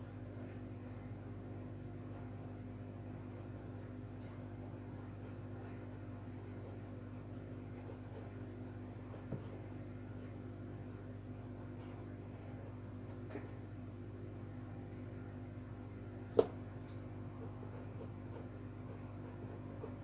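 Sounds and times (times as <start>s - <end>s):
low electrical hum: 0.0s - 20.0s
pencil scratching on paper: 0.4s - 2.6s, 3.2s - 12.8s, 17.3s - 20.0s.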